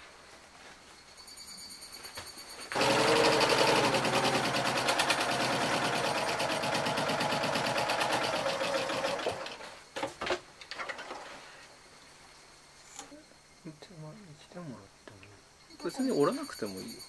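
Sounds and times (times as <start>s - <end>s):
sewing machine stitching: 2.7s - 9.8s.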